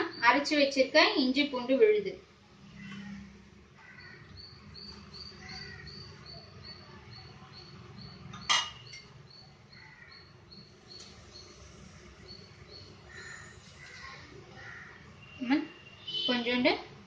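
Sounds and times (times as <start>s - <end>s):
steel bowl clinking: 8.4s - 9.1s.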